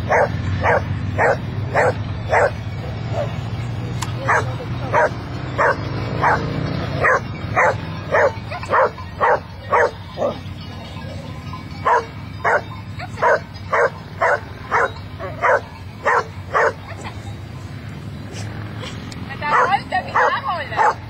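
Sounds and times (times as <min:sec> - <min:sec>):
dog barking sharply: 0:04.3 - 0:10.0, 0:19.5 - 0:21.0.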